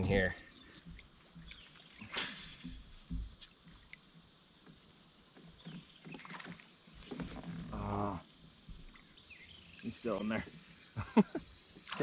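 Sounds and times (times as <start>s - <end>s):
soft low knocks on kayak: 2.6s - 3.5s.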